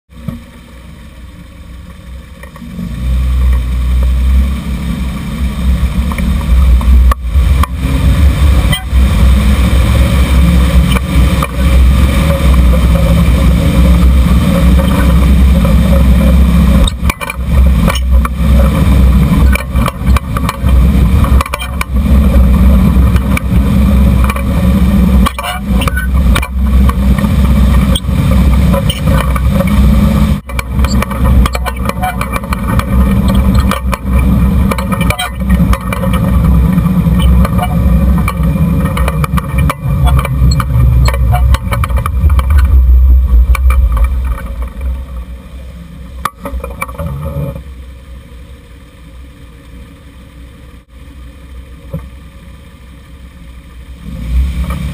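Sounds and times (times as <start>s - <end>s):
heavy low engine rumble: 0.1s - 54.9s
road and wind noise: 0.1s - 54.9s.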